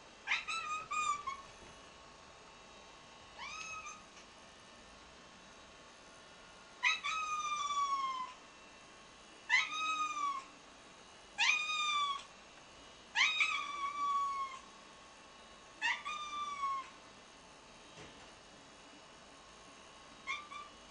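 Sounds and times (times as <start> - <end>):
cat meowing: 0.3 - 1.4, 3.4 - 4.0, 6.8 - 8.4, 9.5 - 10.5, 11.4 - 12.3, 13.2 - 14.6, 15.8 - 17.0, 20.3 - 20.7.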